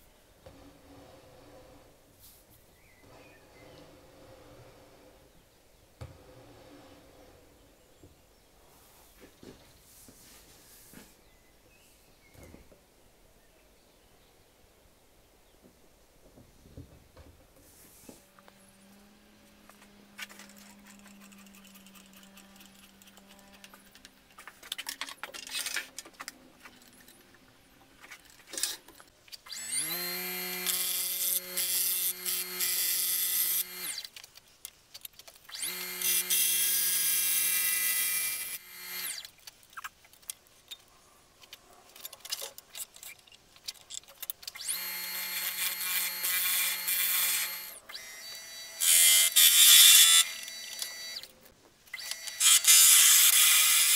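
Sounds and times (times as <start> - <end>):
drill bit boring into wood: 29.5 - 34.1, 35.5 - 39.3, 44.6 - 51.3, 52.0 - 53.9.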